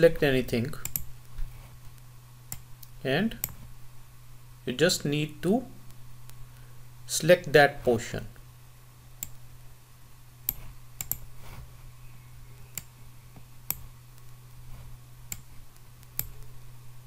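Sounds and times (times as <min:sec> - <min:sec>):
steady low hum: 0:00.0 - 0:17.0
computer mouse clicking: 0:00.8 - 0:01.1, 0:09.2 - 0:09.4, 0:10.5 - 0:11.3, 0:13.6 - 0:13.9, 0:15.3 - 0:16.5.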